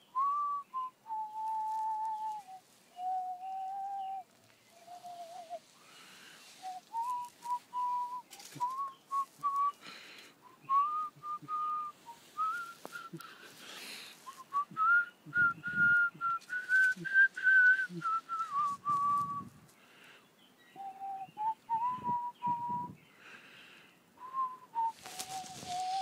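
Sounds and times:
person whistling a tune: 0:00.1 - 0:05.6, 0:06.6 - 0:09.8, 0:10.4 - 0:13.3, 0:14.2 - 0:19.5, 0:20.8 - 0:23.0, 0:24.2 - 0:26.0.

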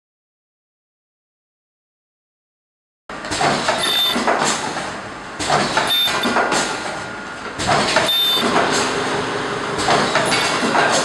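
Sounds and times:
filling machine running: 0:03.1 - 0:11.0.

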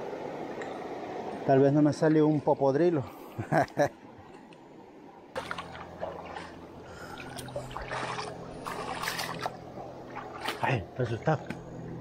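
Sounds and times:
river water trickling and splashing: 0:00.0 - 0:12.0
steady low hum: 0:00.0 - 0:12.0
sharp water splashes: 0:05.4 - 0:10.8.

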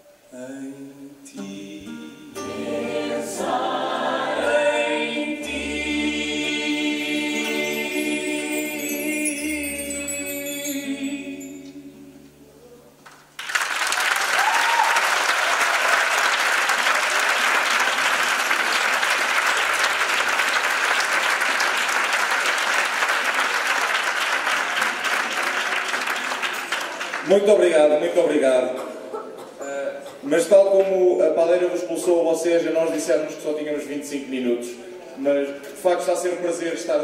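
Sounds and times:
voices singing a chord: 0:00.3 - 0:13.0
string instruments: 0:01.3 - 0:13.3
audience applause: 0:13.1 - 0:27.3.

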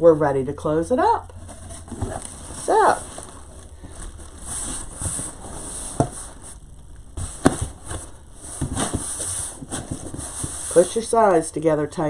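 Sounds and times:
cardboard knocks and scrapes: 0:01.4 - 0:06.6, 0:07.2 - 0:10.9.

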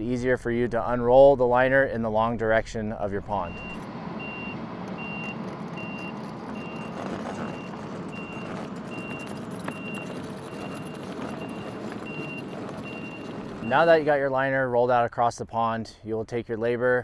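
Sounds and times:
loader engine running: 0:03.2 - 0:14.1
backup alarm beeping: 0:03.4 - 0:14.0.

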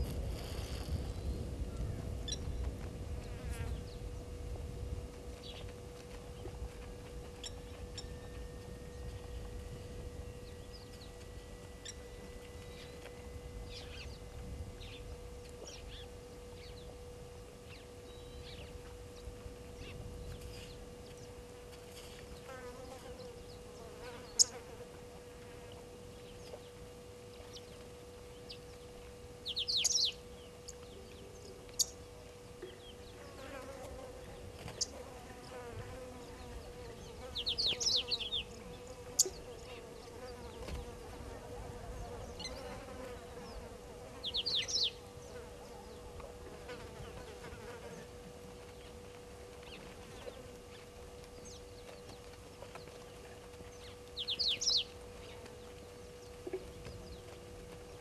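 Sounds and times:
insects buzzing: 0:00.0 - 0:02.5, 0:07.2 - 0:58.0
birds chirping trills: 0:05.4 - 0:58.0.

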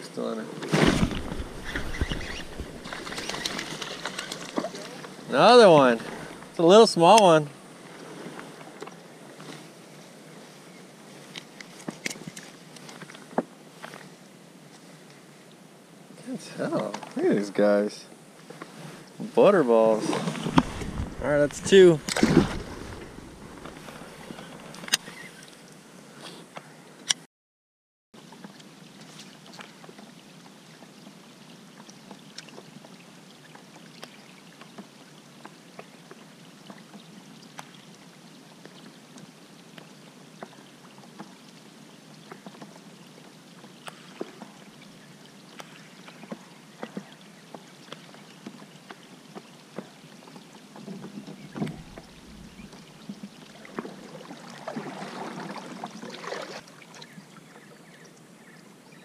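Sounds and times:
light rain hissing: 0:00.2 - 0:11.4, 0:12.6 - 0:26.5, 0:51.4 - 0:53.8
rustling: 0:00.6 - 0:05.1, 0:20.0 - 0:25.1
thump: 0:00.7 - 0:02.7.

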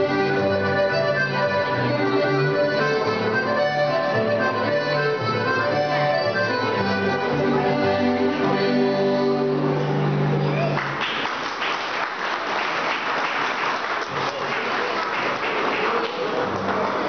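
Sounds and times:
accordion: 0:00.0 - 0:10.6
audience applause: 0:10.6 - 0:17.0.

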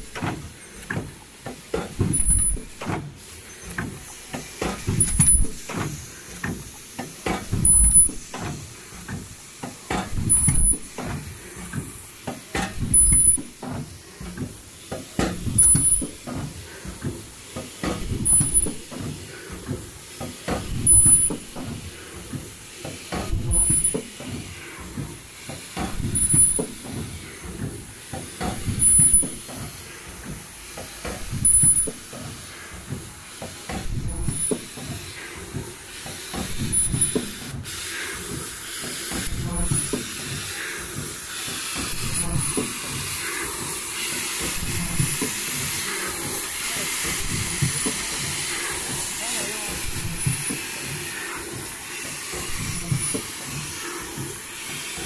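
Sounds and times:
air venting: 0:00.0 - 0:55.0
pneumatic cylinders clacking: 0:00.0 - 0:55.0.

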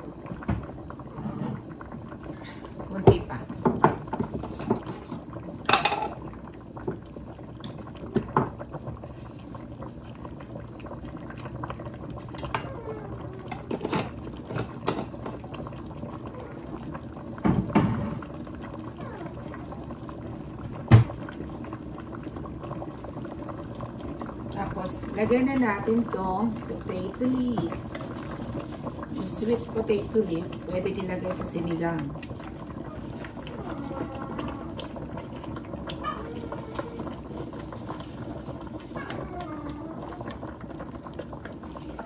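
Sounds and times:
soup bubbling in a pot: 0:00.0 - 0:42.0
kitchen things clinking and knocking: 0:05.7 - 0:06.2.

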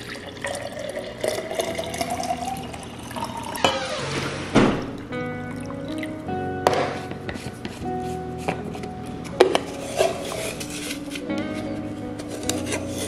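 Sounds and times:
liquid pouring into a glass: 0:00.0 - 0:03.7.

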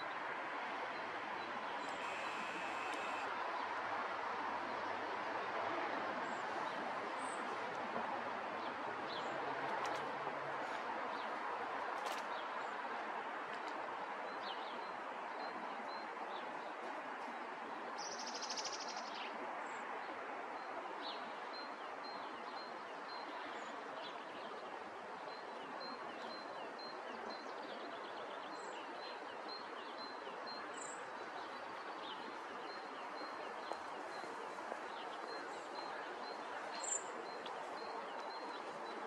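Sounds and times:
songbirds chirping: 0:00.0 - 0:03.8, 0:13.6 - 0:39.0.

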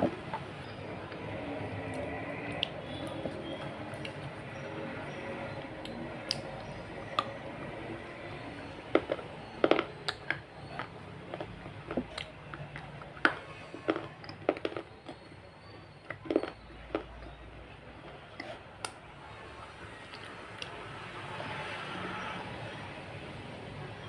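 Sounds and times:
person chewing with mouth open: 0:00.0 - 0:07.4, 0:08.3 - 0:19.0.

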